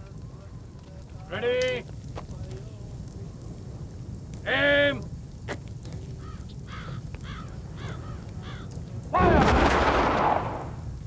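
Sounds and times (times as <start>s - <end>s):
low background rumble: 0.0s - 11.0s
crows cawing: 6.2s - 8.8s
rifle volley: 9.2s - 10.8s.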